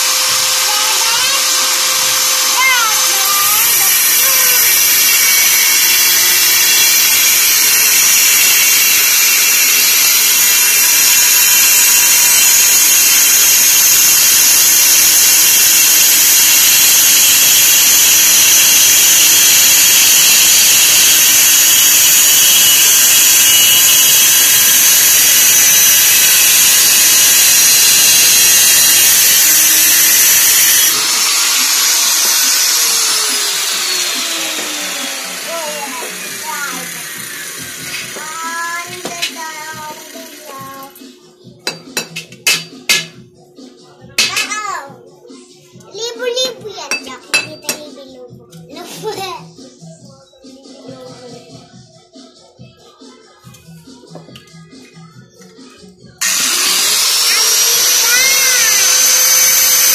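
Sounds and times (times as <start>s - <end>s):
motor winding down whine: 0.0s - 38.5s, 56.2s - 59.9s
power tool grinding steel: 0.0s - 40.7s, 41.7s - 43.2s, 56.2s - 59.9s.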